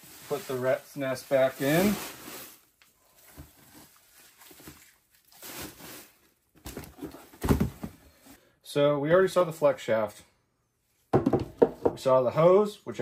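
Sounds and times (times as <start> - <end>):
shredded paper rustling: 0.0 - 2.6.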